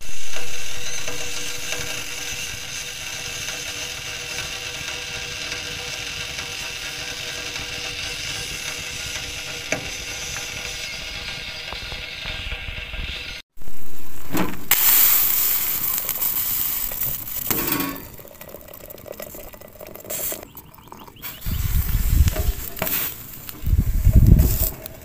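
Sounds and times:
teapot hissing and sizzling: 0:00.0 - 0:12.6, 0:13.6 - 0:25.0
low rumbling bursts: 0:21.4 - 0:25.0.

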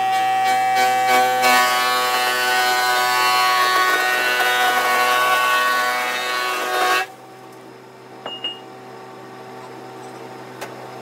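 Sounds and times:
low steady hum: 0:07.1 - 0:11.0.

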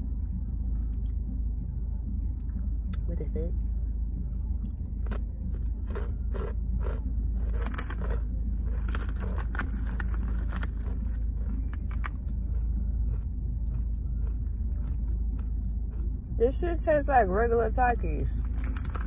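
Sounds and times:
steady low rumble: 0:00.0 - 0:19.0
chips crunching being chewed: 0:05.0 - 0:16.1, 0:18.4 - 0:19.0.

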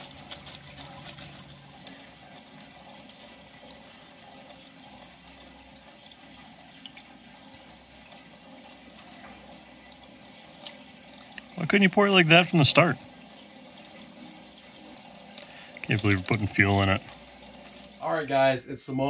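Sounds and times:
fuel pouring into funnel: 0:00.0 - 0:18.5.

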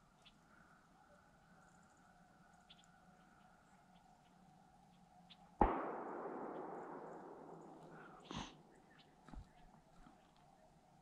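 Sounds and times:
gunshot echo rolling: 0:05.6 - 0:08.8.

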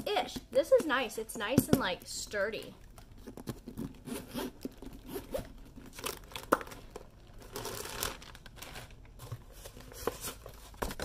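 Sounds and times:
plastic packing crinkling: 0:02.8 - 0:11.0
zipper being pulled open: 0:03.2 - 0:05.6.

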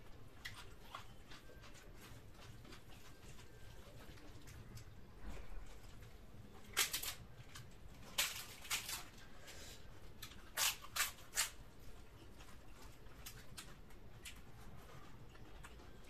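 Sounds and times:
crisp papad crunching: 0:06.6 - 0:14.6.

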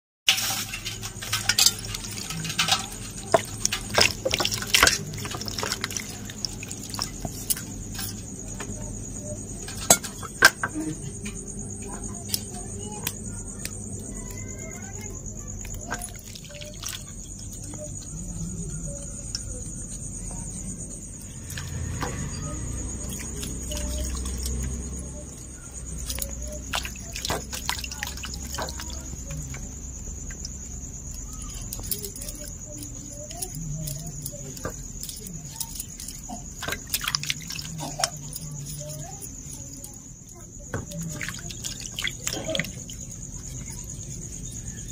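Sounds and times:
water splashing over potatoes: 0:00.3 - 0:08.2, 0:15.6 - 0:18.8, 0:21.2 - 0:44.7
hands rubbing wet potatoes: 0:01.0 - 0:09.7, 0:12.3 - 0:44.9.

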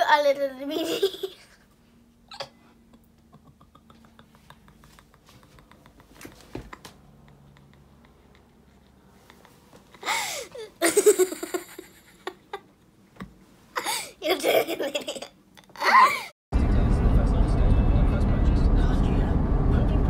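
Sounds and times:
young child giggling: 0:00.7 - 0:01.7, 0:02.3 - 0:12.7, 0:13.8 - 0:16.3.

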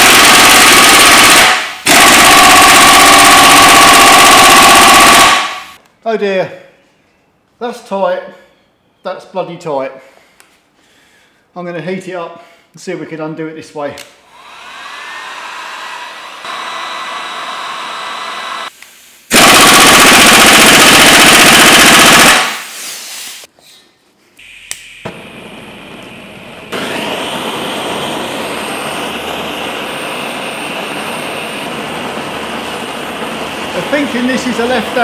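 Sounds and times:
blowtorch flame hissing: 0:26.7 - 0:35.0.

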